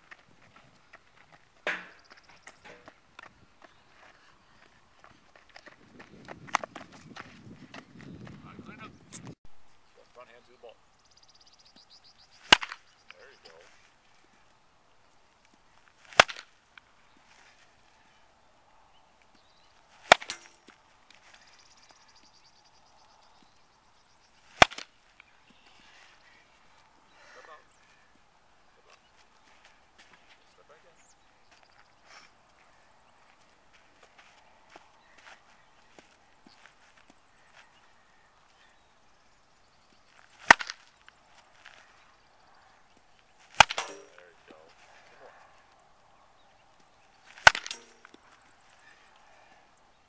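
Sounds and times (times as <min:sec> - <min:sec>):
bat hitting ball: 0:01.6 - 0:02.9, 0:12.5 - 0:12.8, 0:16.1 - 0:16.5, 0:20.0 - 0:20.8, 0:24.6 - 0:24.9, 0:40.5 - 0:40.8, 0:43.6 - 0:44.2, 0:47.4 - 0:48.2.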